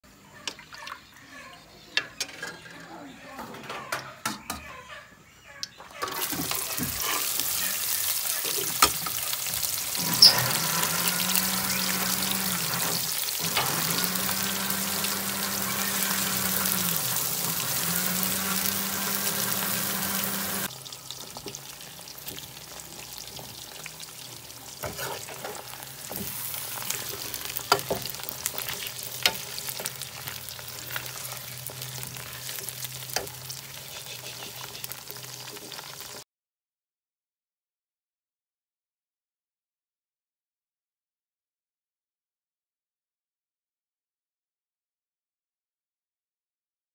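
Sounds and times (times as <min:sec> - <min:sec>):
onions sizzling in hot oil: 0:06.1 - 0:36.2.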